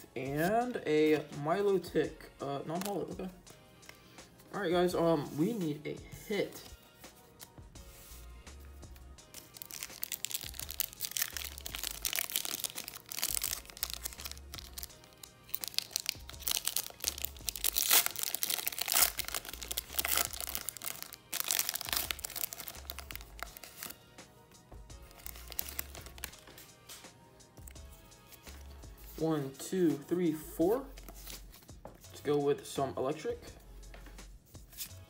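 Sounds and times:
background music with bass: 0:00.0 - 0:35.0
foil wrapper crinkling and tearing: 0:09.4 - 0:24.0, 0:25.1 - 0:26.4.

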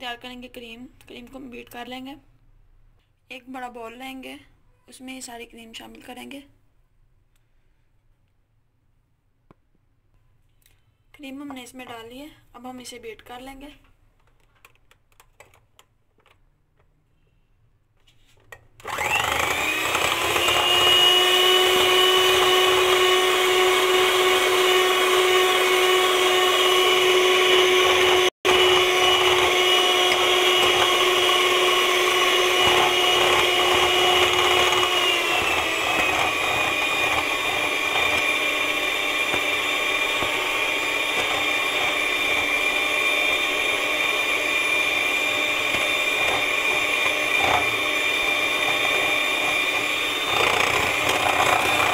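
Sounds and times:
electric hand mixer whipping cream: 0:18.8 - 0:51.9.

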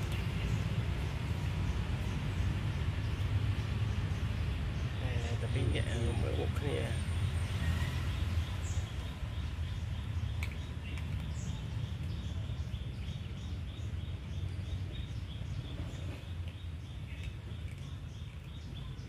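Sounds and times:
cats chewing: 0:08.8 - 0:19.0.

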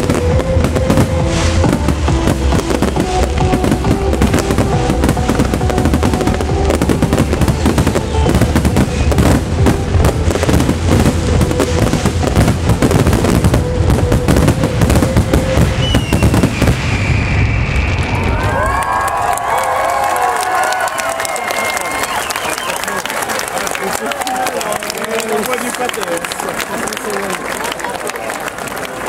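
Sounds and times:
trance music over loudspeakers: 0:00.0 - 0:15.8
fireworks bursting and crackling: 0:00.0 - 0:29.0.

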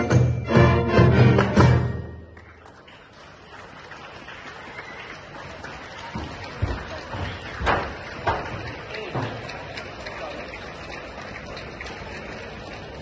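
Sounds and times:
marching band final chord: 0:00.0 - 0:02.3.

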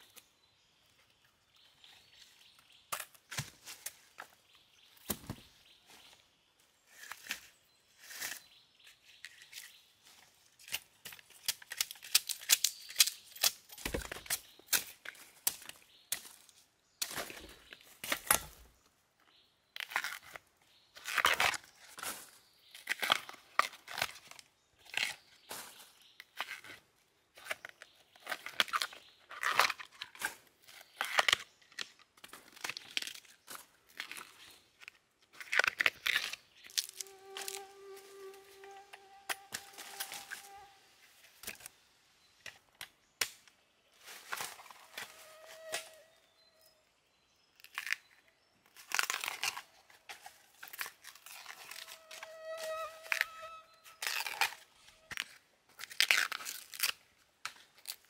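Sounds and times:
husks tearing off bamboo shoots: 0:10.6 - 0:16.2, 0:35.3 - 0:41.7, 0:48.8 - 0:58.0.

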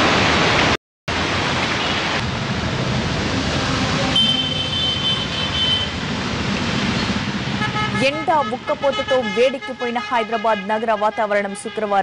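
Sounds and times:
heavy rain pouring: 0:00.0 - 0:08.8
vehicles driving through water: 0:00.0 - 0:12.0.

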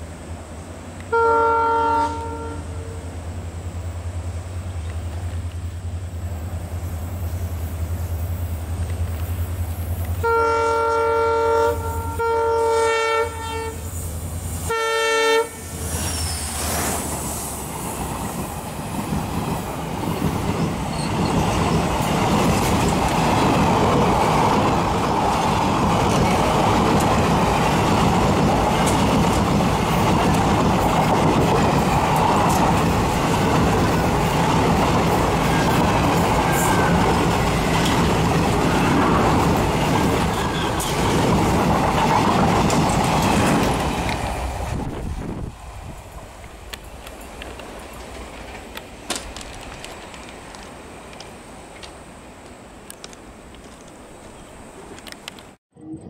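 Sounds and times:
train horn blasts: 0:01.0 - 0:03.1, 0:10.1 - 0:14.0, 0:14.6 - 0:15.8
train wheels rolling: 0:02.0 - 0:55.6
locomotive engine drone: 0:02.2 - 0:17.8.

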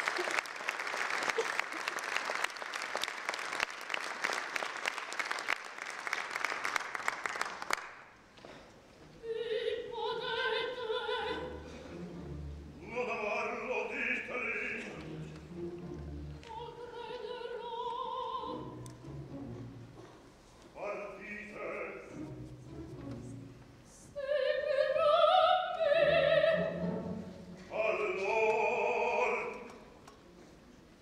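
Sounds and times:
audience applauding: 0:00.0 - 0:08.2
person singing opera: 0:09.2 - 0:12.0, 0:12.8 - 0:15.5, 0:16.4 - 0:18.8, 0:20.8 - 0:22.3, 0:23.9 - 0:29.9.

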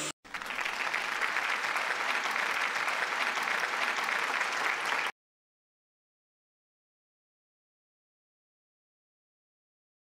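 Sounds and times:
crowd clapping: 0:00.0 - 0:05.2.

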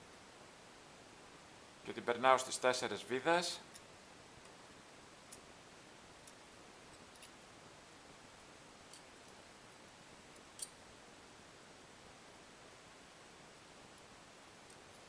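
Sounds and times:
small parts clicking: 0:06.2 - 0:07.4.

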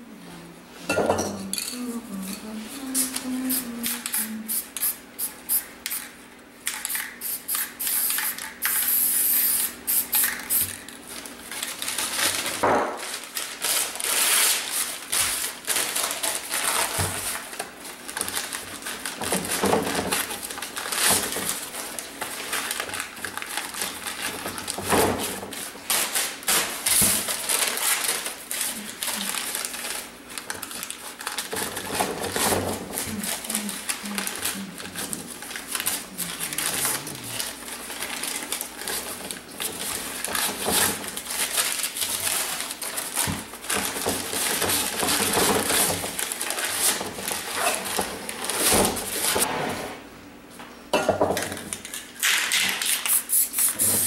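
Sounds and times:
spray paint can hissing: 0:04.1 - 0:06.0, 0:06.9 - 0:10.7, 0:53.1 - 0:54.0
paper crinkling and rustling: 0:10.9 - 0:49.5.

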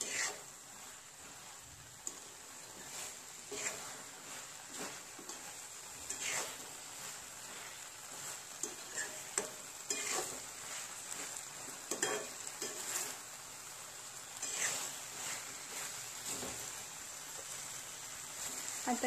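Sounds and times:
spatula scraping and knocking pan: 0:00.0 - 0:13.4, 0:14.4 - 0:16.8
food sizzling in a frying pan: 0:00.0 - 0:19.0.

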